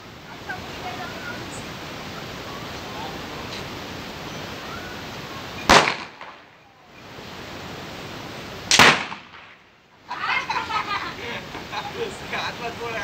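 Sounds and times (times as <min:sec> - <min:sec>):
firecrackers banging: 0:05.6 - 0:06.6, 0:08.6 - 0:09.8.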